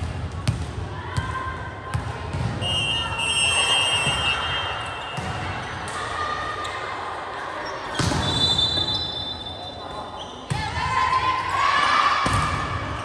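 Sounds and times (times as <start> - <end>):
volleyball bouncing on gym floor: 0.0 - 2.6, 5.2 - 5.6, 12.2 - 12.8
sharp volleyball hit: 12.2 - 12.8.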